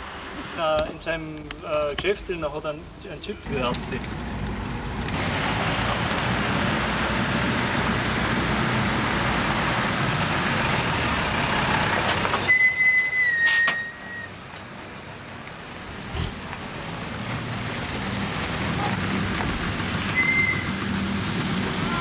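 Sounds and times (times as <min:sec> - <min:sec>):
military trucks driving on gravel: 0:03.4 - 0:22.0
high whistle-like tone: 0:12.5 - 0:14.3, 0:20.1 - 0:20.7.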